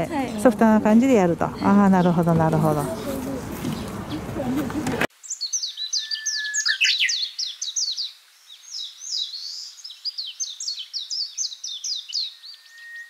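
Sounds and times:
songbirds chirping: 0.0 - 13.0
long steady bird whistle: 5.2 - 13.0.

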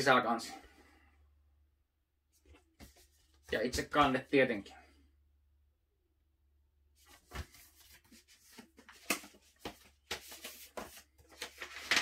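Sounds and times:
cardboard and paper rustling: 7.0 - 12.0.

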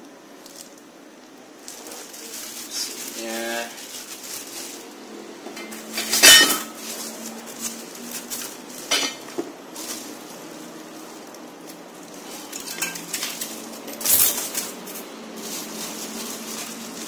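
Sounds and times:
packaging rustling: 0.4 - 17.0.

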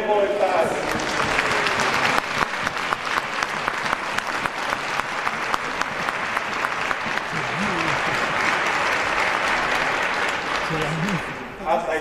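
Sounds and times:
crowd applauding: 0.3 - 11.9.

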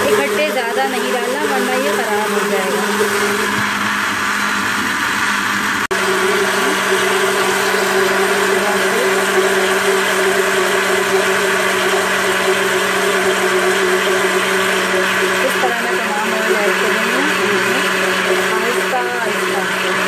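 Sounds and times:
electric blender running: 0.0 - 20.0.

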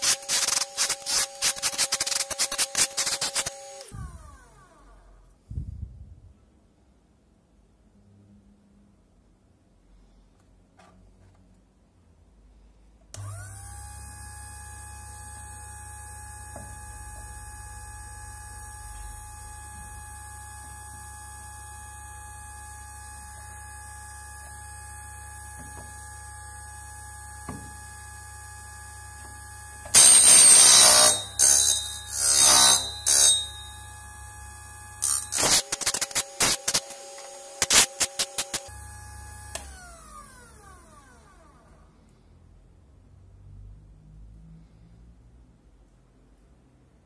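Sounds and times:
loud grinding: 0.0 - 4.4, 29.2 - 33.9, 35.0 - 38.7
electric motor humming and whining: 0.0 - 5.3, 13.2 - 41.7.

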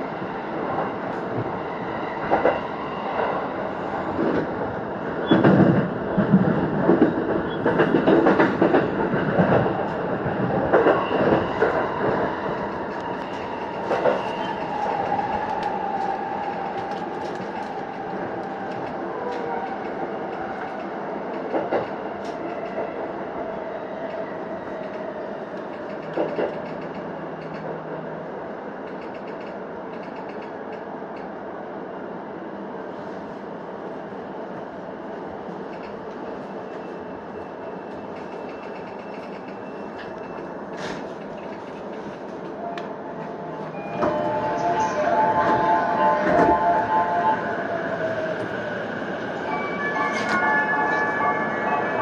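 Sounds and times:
train rolling noise: 0.0 - 31.4, 32.4 - 52.0.

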